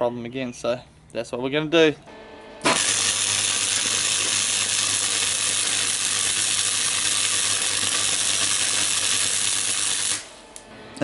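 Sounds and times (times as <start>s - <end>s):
arc welding crackling: 2.6s - 10.7s
low hum: 10.3s - 11.0s.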